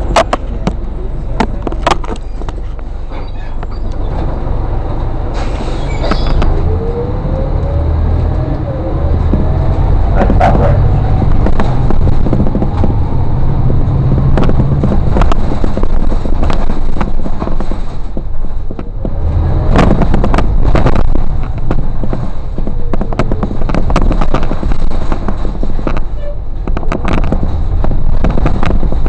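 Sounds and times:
bus engine and road rumble: 0.0s - 29.0s
sharp knocks and rattles: 9.3s - 29.0s.

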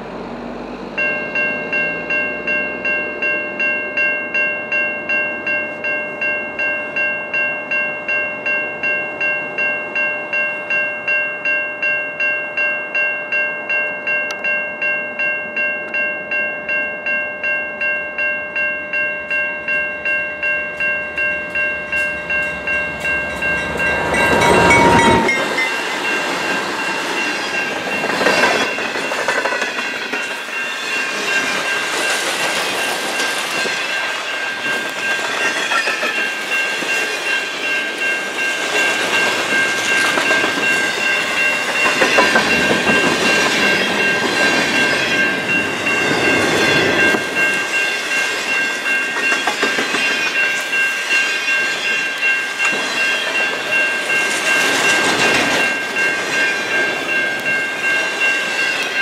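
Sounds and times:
locomotive bell ringing: 0.0s - 59.0s
locomotives passing with rush: 20.7s - 50.6s, 51.6s - 59.0s.

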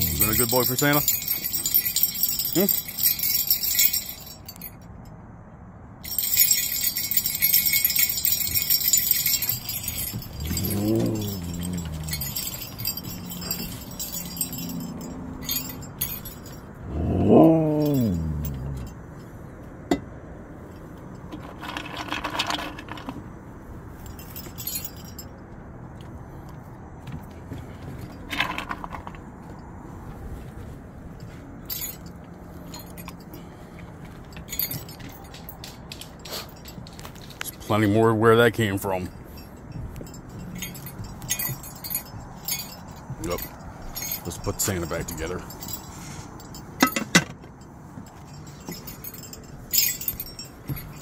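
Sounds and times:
husky talking calls: 0.0s - 3.3s, 7.5s - 16.2s, 16.8s - 18.9s
sleigh bells jingling: 0.0s - 4.9s, 6.0s - 19.3s, 23.9s - 25.4s, 31.1s - 51.0s.

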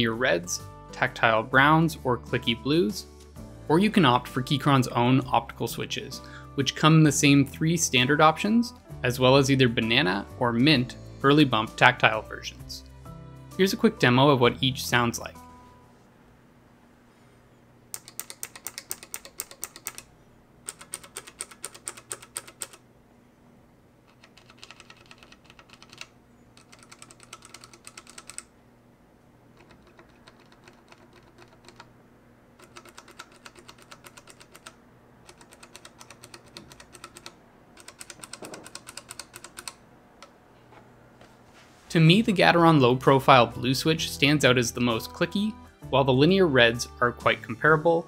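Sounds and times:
keyboard switches clicking: 17.9s - 22.8s, 32.6s - 40.4s.

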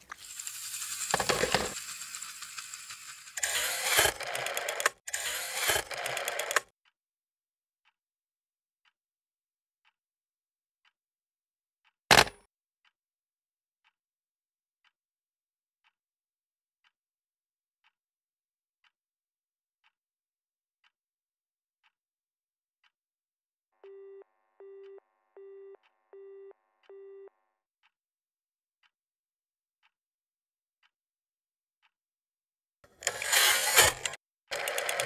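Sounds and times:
phone busy tone beeps: 23.8s - 27.4s.

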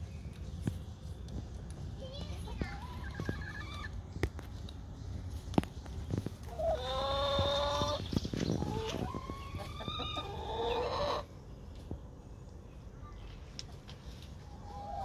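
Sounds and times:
hens calling: 6.4s - 11.3s, 14.4s - 15.0s.

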